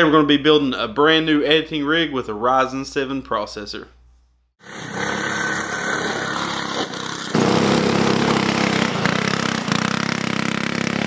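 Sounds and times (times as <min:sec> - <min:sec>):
loud go-kart engine: 0:04.6 - 0:11.0
small go-kart engine: 0:04.6 - 0:11.0.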